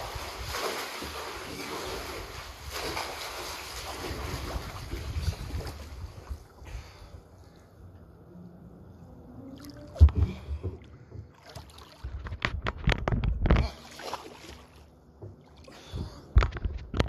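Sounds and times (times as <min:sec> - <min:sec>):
paddle splashing and dripping: 0:00.0 - 0:07.6.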